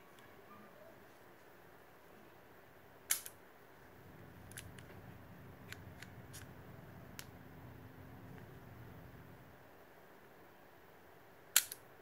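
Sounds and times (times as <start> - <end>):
light mechanical clicks: 11.6 - 11.9.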